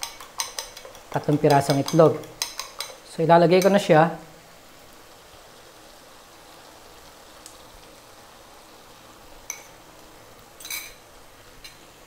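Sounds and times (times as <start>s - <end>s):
fork clinking on ceramic bowl: 0.0s - 1.0s
simmering pan hiss: 0.0s - 12.0s.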